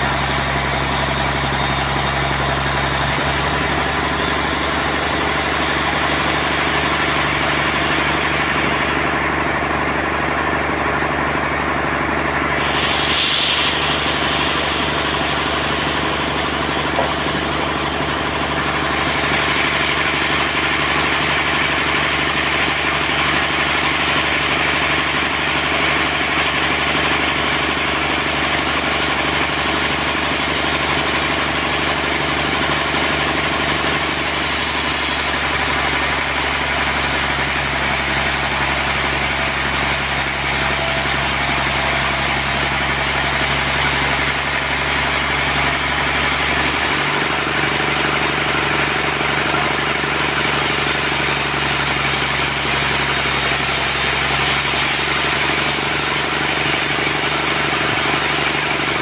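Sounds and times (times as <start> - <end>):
sawmill machine drone: 0.0 - 59.0
high hiss: 12.6 - 15.0.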